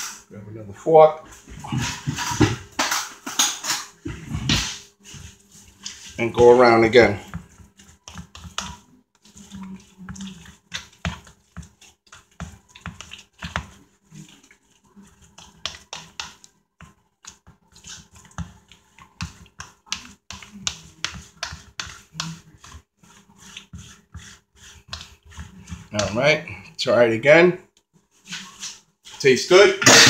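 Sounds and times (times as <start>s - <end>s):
fork stirring in plastic bowl: 1.6s - 26.8s.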